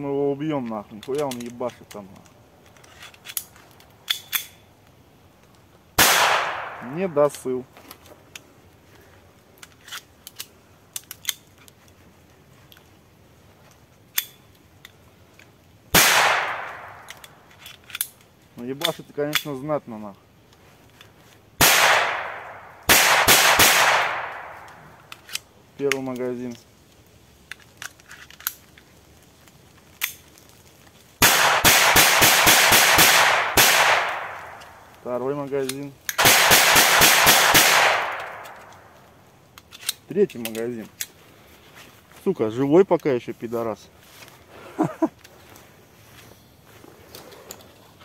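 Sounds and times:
pistol mechanism clicking: 0:01.0 - 0:01.6, 0:02.6 - 0:04.6, 0:09.6 - 0:11.7, 0:16.0 - 0:18.2, 0:21.7 - 0:26.0, 0:35.6 - 0:40.6
loud gunshot: 0:06.0 - 0:07.0, 0:16.0 - 0:17.0, 0:21.6 - 0:24.6, 0:31.2 - 0:34.5, 0:36.2 - 0:38.5
pistol shots: 0:06.0 - 0:07.2, 0:15.9 - 0:17.3, 0:21.6 - 0:25.0, 0:31.2 - 0:34.8, 0:36.2 - 0:38.9.

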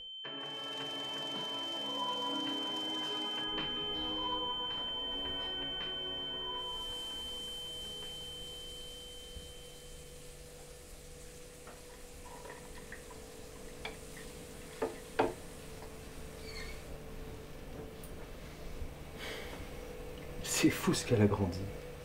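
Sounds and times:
high held tone: 0:00.0 - 0:11.6
faint steady hum: 0:00.0 - 0:22.0.

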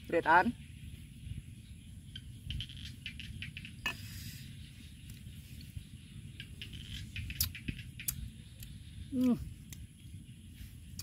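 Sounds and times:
low background rumble: 0:00.0 - 0:11.0
mouth clicks and smacks: 0:06.4 - 0:09.9.

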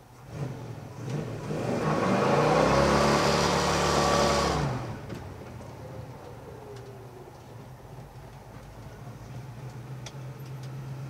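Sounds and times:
car engine revving: 0:00.2 - 0:05.4.

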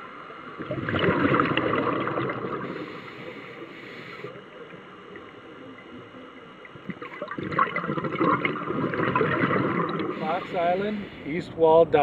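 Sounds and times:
underwater rushing water: 0:00.0 - 0:11.2
bubbles fizzing: 0:00.6 - 0:03.5, 0:06.7 - 0:10.6.

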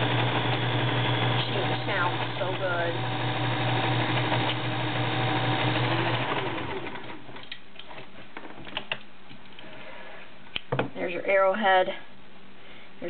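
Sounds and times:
sewing machine running: 0:00.0 - 0:07.2.

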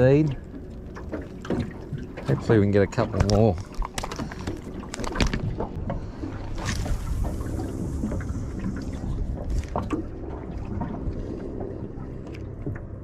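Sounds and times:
water slapping against boat hull: 0:00.0 - 0:13.0
wind on microphone: 0:05.2 - 0:12.1.

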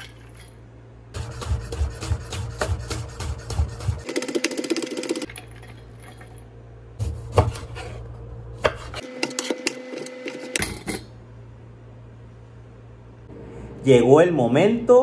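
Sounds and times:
knife chopping on wooden board: 0:01.2 - 0:04.4.

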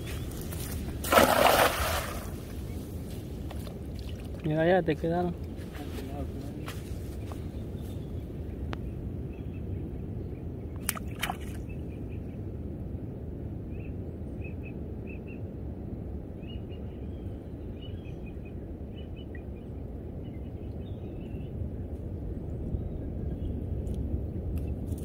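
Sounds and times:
small birds chirping: 0:00.0 - 0:01.0, 0:02.4 - 0:12.4
low outdoor rumble: 0:00.0 - 0:25.0.

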